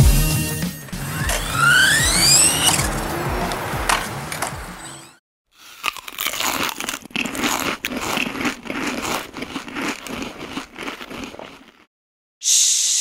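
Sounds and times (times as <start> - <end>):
snack crinkling and crunching: 5.6 - 11.9.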